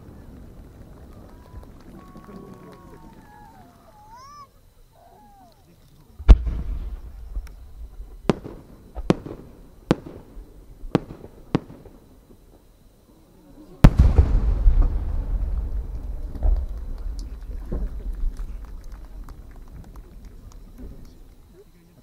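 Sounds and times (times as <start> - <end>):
firework sharp cracks: 0.0 - 4.4, 6.2 - 12.9, 13.8 - 21.7
firework shell bursting boom: 6.2 - 12.1, 13.8 - 21.2
firework mortar launch boom: 6.2 - 12.7, 13.8 - 21.4.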